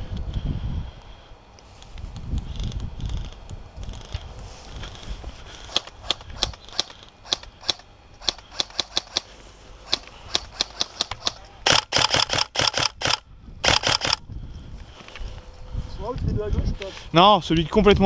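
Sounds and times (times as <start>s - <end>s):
airsoft rifle shots and bursts: 6.7s - 9.3s, 9.9s - 14.2s.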